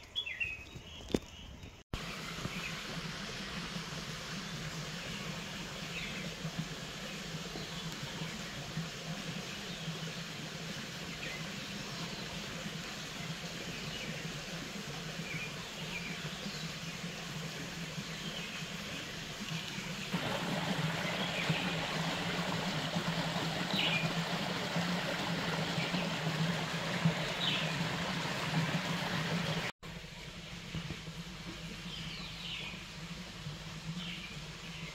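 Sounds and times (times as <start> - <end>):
steady hiss with low hum: 29.0 - 34.9.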